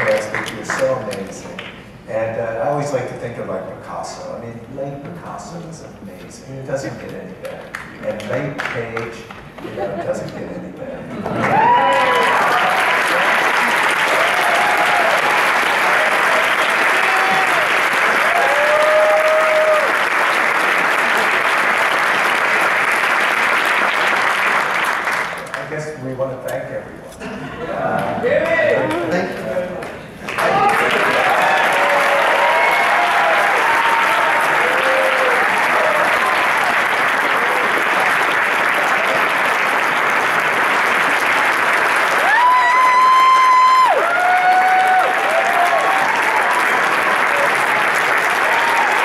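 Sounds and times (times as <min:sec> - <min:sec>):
audience applauding: 0:00.0 - 0:01.7, 0:11.2 - 0:25.7, 0:28.3 - 0:49.0
person cheering high: 0:11.4 - 0:15.4, 0:16.0 - 0:20.0, 0:30.4 - 0:36.5, 0:42.2 - 0:46.6, 0:48.4 - 0:49.0.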